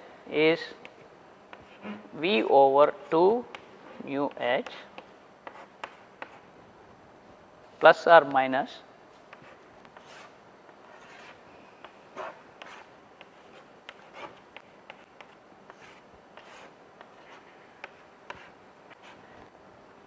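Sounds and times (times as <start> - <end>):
chalk tapping: 4.3 - 6.5, 9.3 - 19.2
chalk scratching on blackboard: 5.4 - 6.5, 9.3 - 10.3, 10.9 - 19.2.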